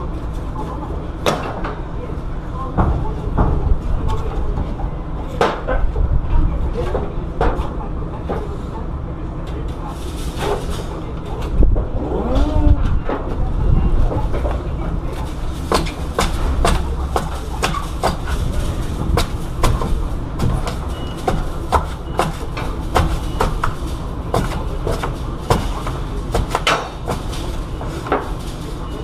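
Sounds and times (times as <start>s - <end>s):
steady low rumble: 11.4s - 21.6s.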